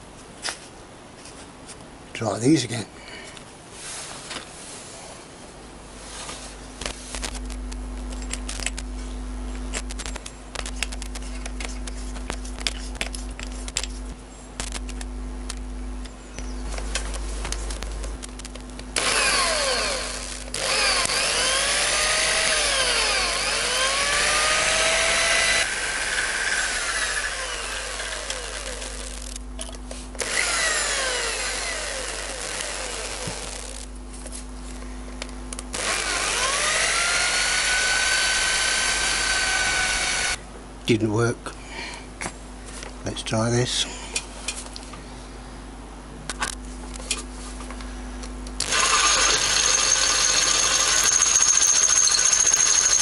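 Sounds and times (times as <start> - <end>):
drill bit squealing: 19.0 - 29.3, 35.8 - 40.4, 48.6 - 53.0
electric drill cutting steel: 19.0 - 29.4, 30.2 - 33.9, 35.8 - 40.4, 48.6 - 53.0.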